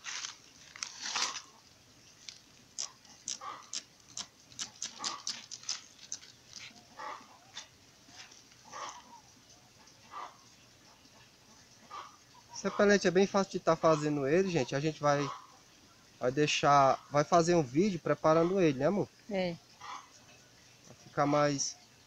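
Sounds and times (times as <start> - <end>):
spray bottle squirting: 2.7 - 6.7.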